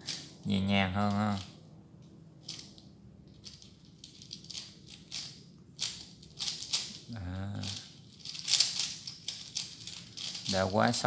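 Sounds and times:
man humming: 7.1 - 7.9.

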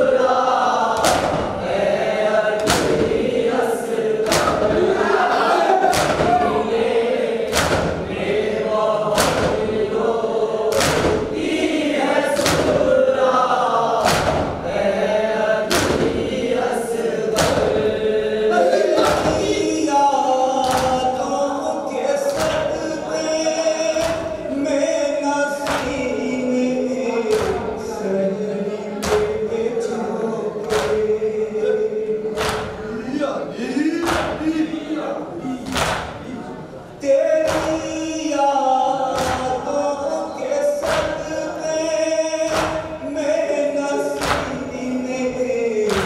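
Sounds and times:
men chanting in unison: 0.0 - 46.0
collective chest-beating slaps: 0.9 - 3.4, 4.2 - 5.0, 5.8 - 6.8, 7.5 - 9.9, 10.7 - 11.6, 12.3 - 13.0, 14.0 - 14.8, 15.7 - 16.4, 17.3 - 18.0, 19.0 - 19.6, 20.6 - 21.2, 22.3 - 22.7, 24.0 - 24.4, 25.6 - 26.0, 27.3 - 27.8, 29.0 - 29.4, 30.6 - 31.1, 32.3 - 32.8, 34.0 - 34.5, 35.6 - 36.4, 37.4 - 38.0, 39.1 - 39.7, 40.8 - 41.3, 42.5 - 43.0, 44.2 - 44.7.

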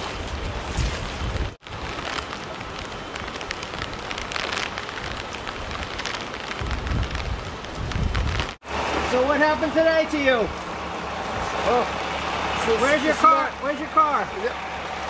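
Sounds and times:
wind rumble on microphone: 0.0 - 8.6
rain falling on street water: 0.0 - 15.0.

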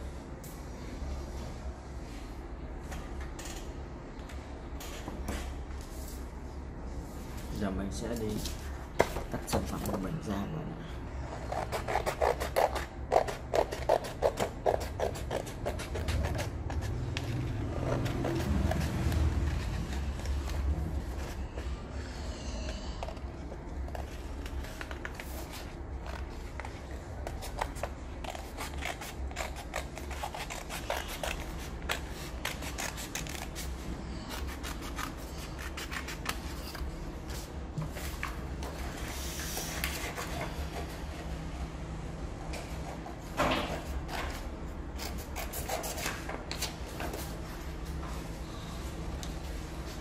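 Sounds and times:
steady low hum: 0.0 - 50.0
scissors snipping paper: 27.2 - 33.7.

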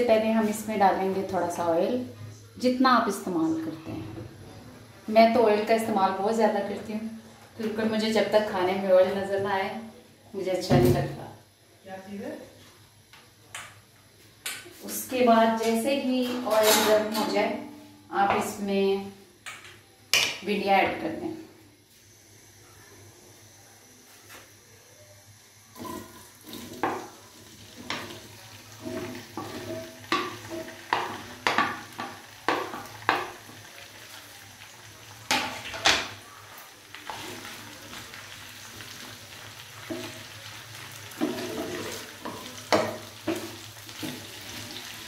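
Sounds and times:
okra sizzling in hot oil: 25.2 - 45.0
spatula scraping a pan: 27.7 - 33.4, 41.1 - 45.0.

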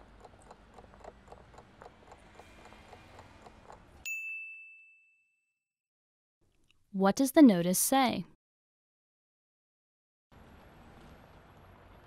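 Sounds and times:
timer ticking: 0.0 - 4.0
bell ding: 4.0 - 5.6.

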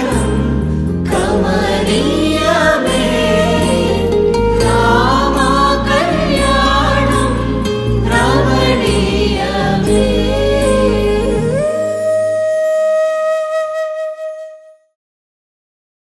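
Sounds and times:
steady bass: 0.0 - 12.5
person singing: 0.0 - 13.0
held instrument note: 2.0 - 14.8.

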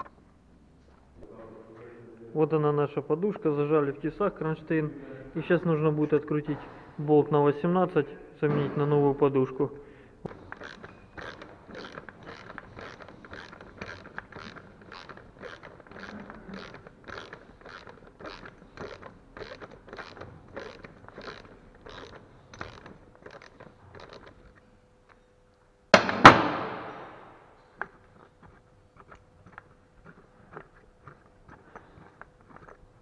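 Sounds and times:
ratchet wrench clicking: 10.2 - 24.4.

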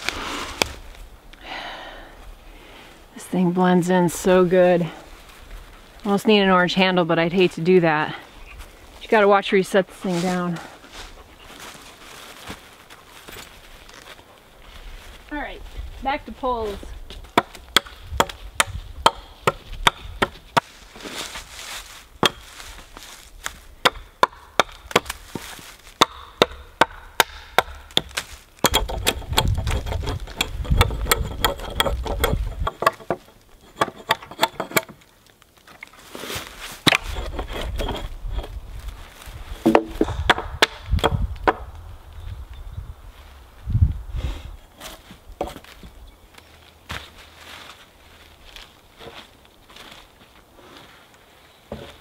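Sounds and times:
hatchet chopping wood: 17.3 - 20.7, 22.2 - 22.5, 23.8 - 33.2, 36.8 - 38.0, 39.6 - 41.7.

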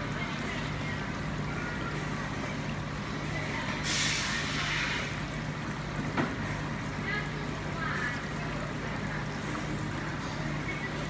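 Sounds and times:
low machine hum: 0.0 - 11.0
loud hiss: 3.8 - 5.0.

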